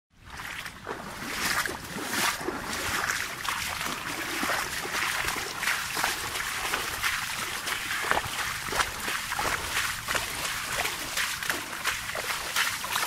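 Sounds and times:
rain on wet vegetation: 4.4s - 13.0s.

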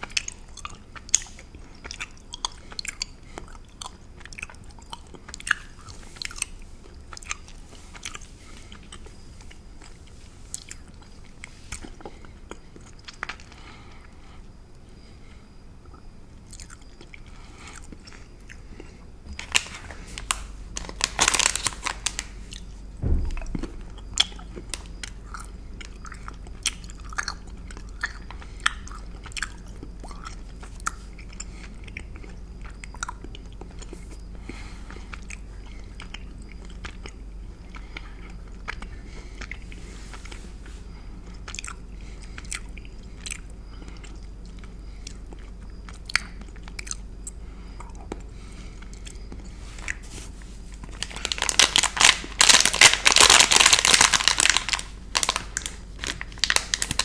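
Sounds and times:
chewing mouth clicks: 0.0s - 13.6s, 23.4s - 34.3s, 41.2s - 50.0s
plastic wrapper crinkling: 19.4s - 25.1s, 50.7s - 57.0s.

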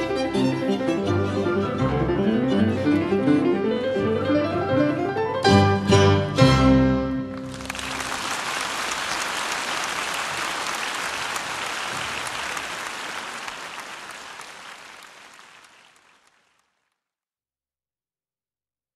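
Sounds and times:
audience applauding: 7.3s - 17.0s.

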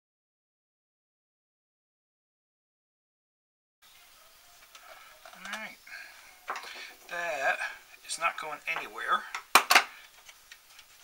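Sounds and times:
faint room hiss: 3.8s - 11.0s.

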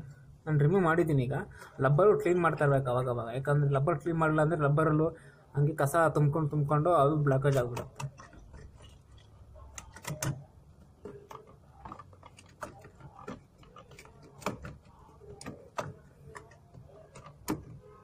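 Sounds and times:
hands clicking and knocking parts: 7.3s - 18.0s.

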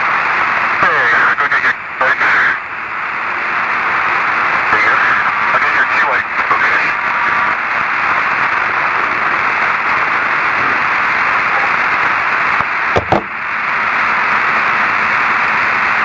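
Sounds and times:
radio static hiss: 0.6s - 2.7s, 3.6s - 13.6s
radio crackles: 0.8s - 2.6s, 4.7s - 7.0s.

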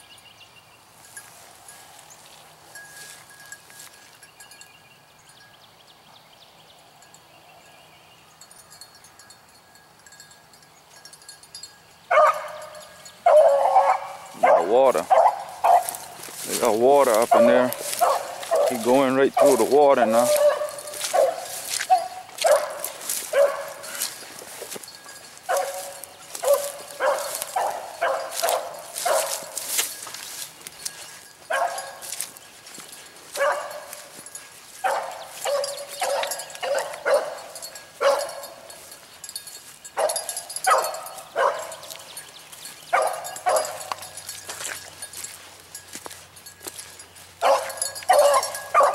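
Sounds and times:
hound baying: 12.1s - 39.1s, 39.9s - 45.6s, 46.6s - 48.9s.

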